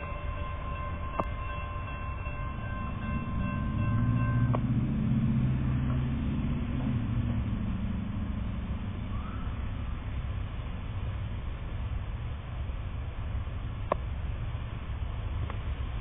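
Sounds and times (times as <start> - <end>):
railroad crossing bell ringing: 0.0 - 6.6
diesel locomotive rumble: 0.0 - 16.0.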